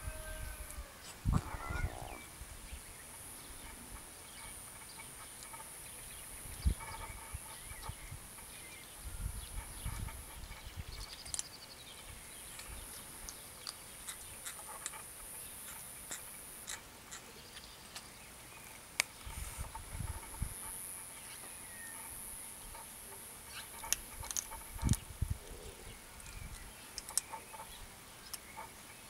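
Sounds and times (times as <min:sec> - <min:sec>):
steady high-pitched hiss: 0:00.0 - 0:29.0.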